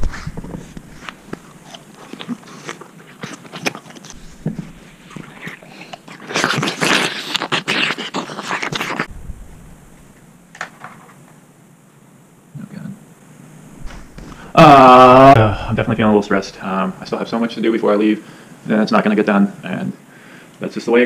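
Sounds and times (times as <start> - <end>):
crunching crisp snack: 1.3 - 4.2.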